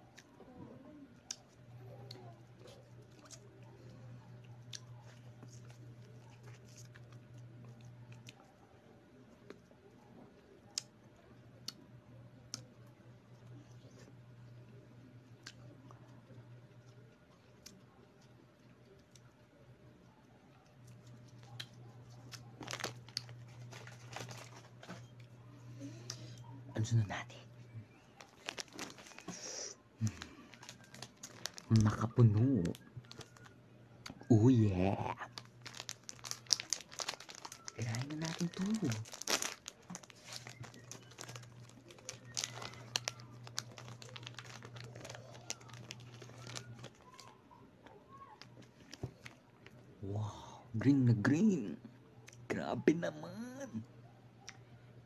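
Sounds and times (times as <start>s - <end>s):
low steady hum: 0.0s - 55.0s
plastic wrapper crinkling: 1.3s - 8.5s, 20.8s - 26.2s, 27.9s - 49.9s.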